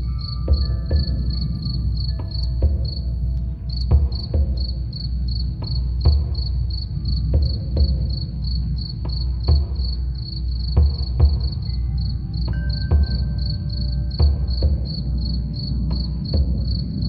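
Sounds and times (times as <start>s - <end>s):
wind chime tones: 0.0s - 3.2s
crickets chirping: 0.0s - 17.0s
soft drum thumps: 0.5s - 11.7s.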